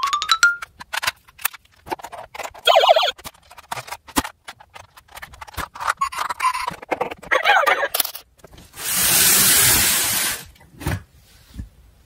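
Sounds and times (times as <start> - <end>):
plastic toys knocking and clicking: 0.0 - 8.6.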